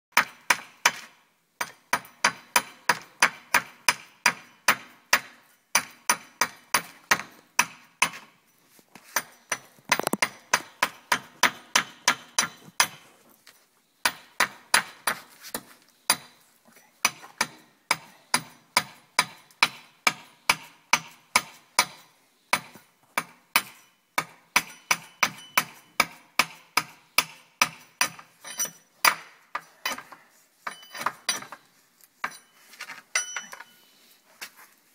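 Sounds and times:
hatchet chopping wood: 0:00.1 - 0:08.3, 0:09.2 - 0:13.0, 0:14.0 - 0:16.3, 0:17.0 - 0:28.3, 0:29.0 - 0:31.6.

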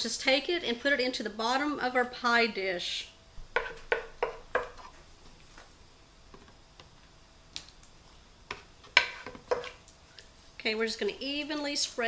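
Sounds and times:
wooden spoon knocking on skillet: 0:03.5 - 0:04.9, 0:08.5 - 0:09.8.

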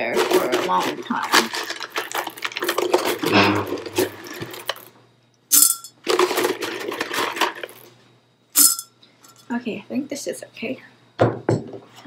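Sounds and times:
pebble clatter against glass: 0:00.0 - 0:04.9, 0:08.6 - 0:08.9
pebbles clicking and clattering: 0:00.0 - 0:04.9, 0:05.6 - 0:07.9.

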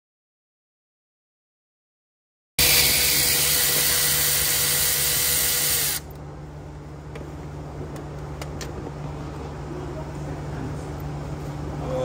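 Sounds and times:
ratchet clicking by hand: 0:02.6 - 0:06.0
cordless ratchet whirring: 0:02.6 - 0:06.1.

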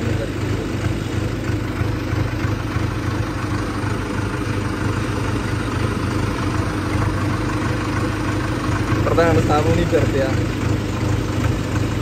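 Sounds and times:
tractor engine idling: 0:00.0 - 0:12.0.

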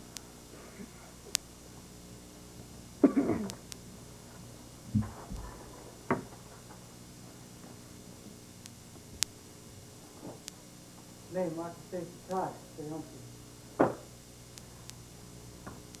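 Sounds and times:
person coughing: 0:03.0 - 0:03.6.

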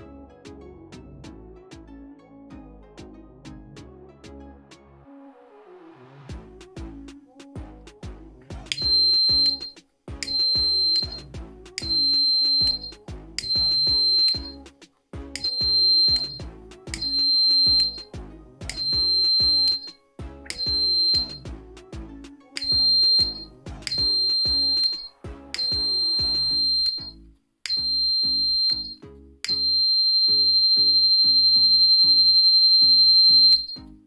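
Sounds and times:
background music: 0:00.0 - 0:34.0
shrill alarm buzzer beeps: 0:08.8 - 0:14.6, 0:15.4 - 0:16.4, 0:17.0 - 0:18.1, 0:18.7 - 0:19.9, 0:20.5 - 0:21.5, 0:22.6 - 0:33.8.

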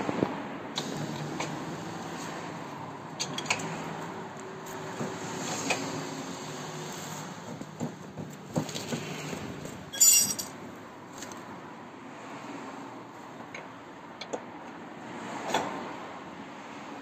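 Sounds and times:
metal clicks and clinks: 0:09.9 - 0:10.6.

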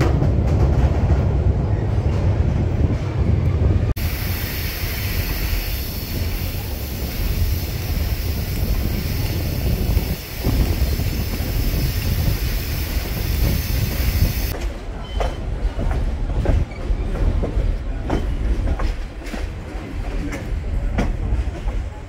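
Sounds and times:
train wheels rumbling on rail: 0:00.0 - 0:22.0
wind hissing: 0:04.0 - 0:14.6.

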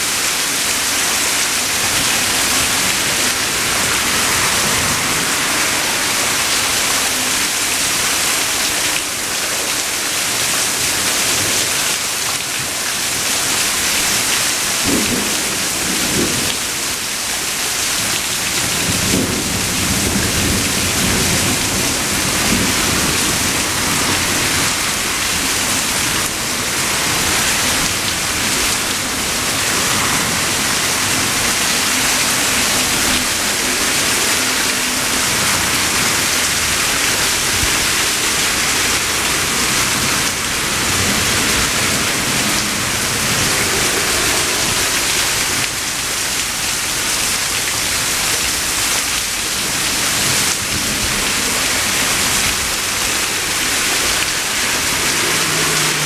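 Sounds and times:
heavy rain falling: 0:00.0 - 0:56.0
rolling thunder: 0:14.8 - 0:16.9.

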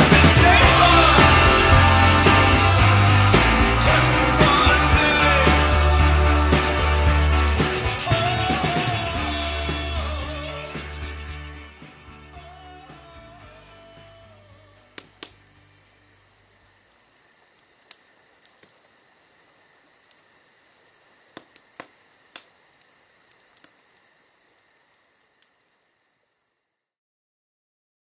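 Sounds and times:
crickets chirping: 0:00.4 - 0:26.9
sharp clicks: 0:14.0 - 0:26.2.

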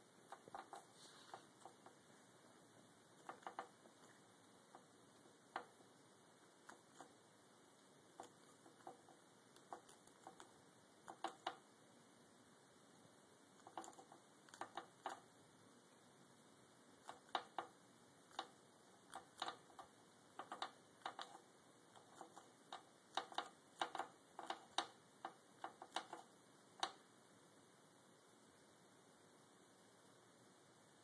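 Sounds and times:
chinchilla gnawing wood: 0:00.2 - 0:02.1, 0:03.0 - 0:11.7, 0:13.6 - 0:15.3, 0:17.0 - 0:27.0.

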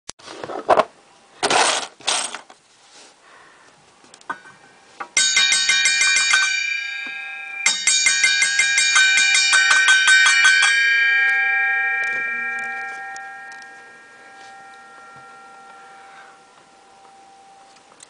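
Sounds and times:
saw blade ringing: 0:05.2 - 0:18.0.

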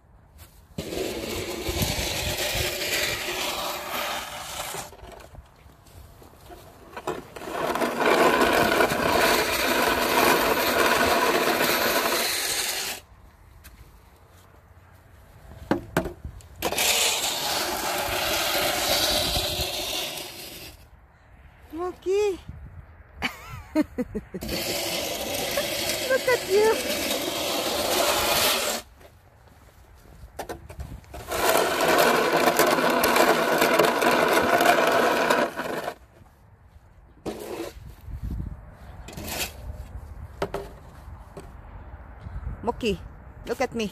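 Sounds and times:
snow shovel scraping asphalt: 0:00.4 - 0:13.1, 0:16.6 - 0:20.8, 0:24.4 - 0:29.0, 0:30.8 - 0:36.3, 0:37.2 - 0:38.2, 0:39.0 - 0:40.0.

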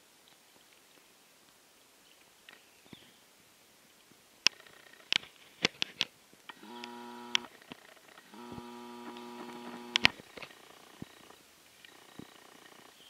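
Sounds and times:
zoom motor humming: 0:06.5 - 0:07.5, 0:08.2 - 0:11.2.

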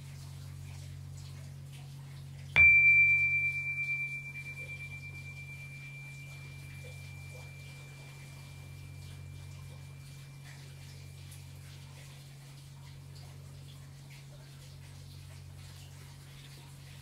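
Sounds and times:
metal tubular gong ringing: 0:02.6 - 0:11.8.

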